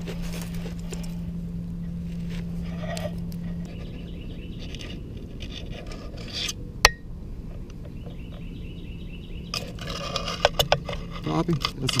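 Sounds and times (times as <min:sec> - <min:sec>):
dog scraping through dirt and leaves: 0:00.0 - 0:01.2.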